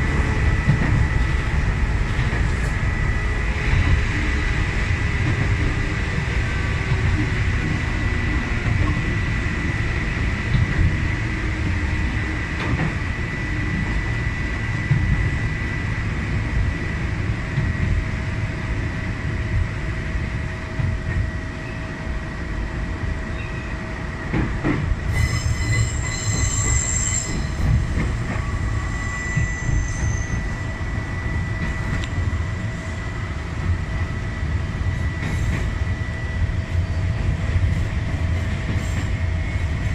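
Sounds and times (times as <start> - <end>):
train wheels rumbling on rails: 0.0 - 39.9
high wheel squeal: 25.1 - 27.7, 28.4 - 30.6.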